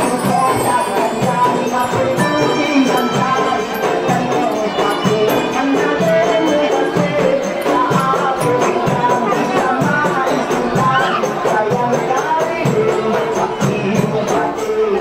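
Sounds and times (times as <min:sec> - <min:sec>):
melody over percussion beat: 0:00.0 - 0:15.0.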